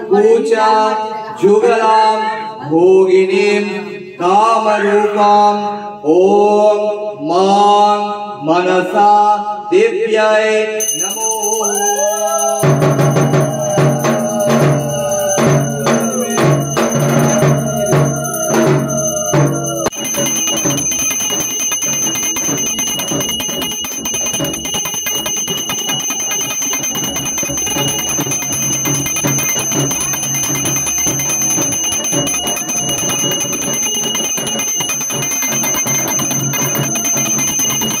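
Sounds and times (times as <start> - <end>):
bells ringing rapidly: 10.8 - 38.0.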